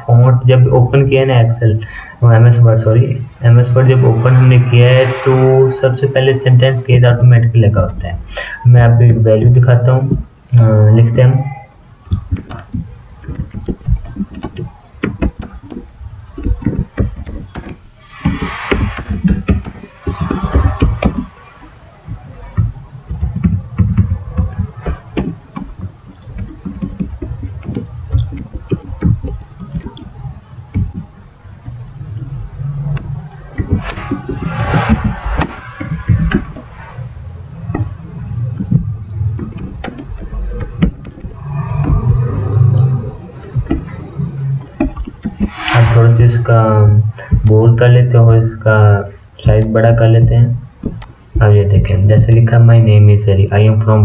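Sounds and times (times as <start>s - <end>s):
low background rumble: 1.6s - 8.2s, 17.8s - 47.6s.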